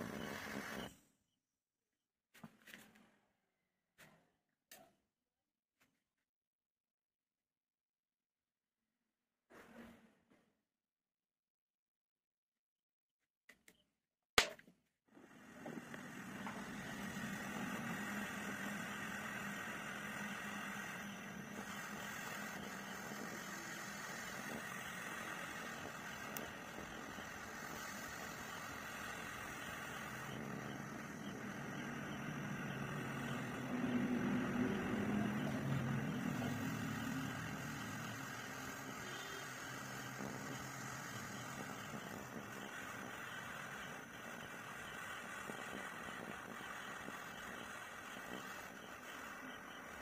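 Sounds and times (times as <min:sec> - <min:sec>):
gas torch hissing: 0:00.0 - 0:00.9, 0:15.1 - 0:50.0.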